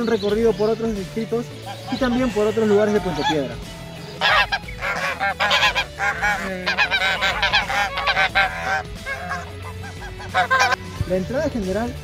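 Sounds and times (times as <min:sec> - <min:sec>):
geese honking: 0:01.5 - 0:10.9.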